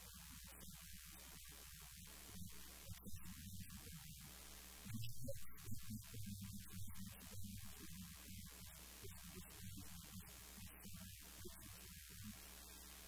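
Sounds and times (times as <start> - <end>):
electrical mains hum: 0.0 - 13.0
faint muffled sounds: 0.0 - 13.0.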